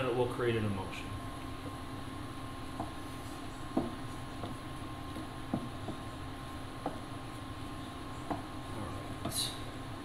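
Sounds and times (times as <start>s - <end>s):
steady hum: 0.0s - 10.0s
wooden spoon knocking pan: 3.7s - 4.6s, 5.2s - 6.1s, 6.8s - 7.1s.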